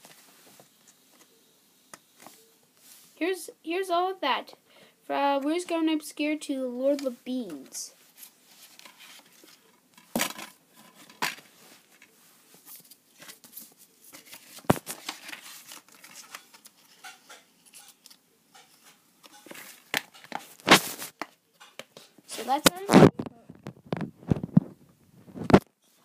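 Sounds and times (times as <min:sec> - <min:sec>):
soft rustling: 0:02.2 - 0:03.2, 0:06.8 - 0:09.8, 0:10.7 - 0:18.0.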